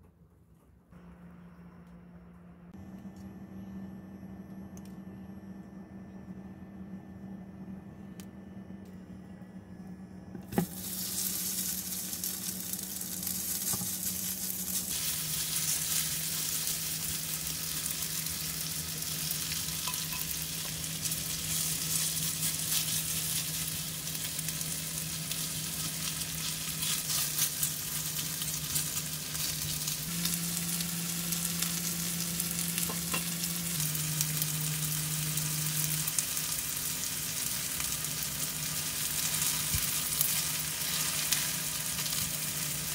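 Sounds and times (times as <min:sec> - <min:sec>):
low hum: 0:00.1 - 0:42.9
potato sizzling in oil: 0:10.6 - 0:42.9.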